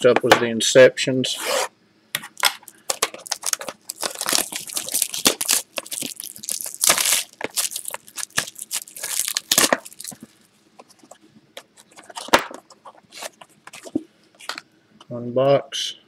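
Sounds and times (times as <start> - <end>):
plastic shrink-wrap crinkling and tearing: 2.6 - 10.5.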